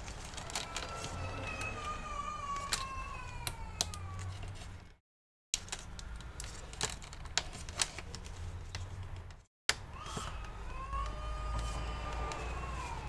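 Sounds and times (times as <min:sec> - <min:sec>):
hands clicking plastic parts: 0:00.0 - 0:04.7, 0:05.6 - 0:13.0
emergency siren: 0:11.0 - 0:13.0.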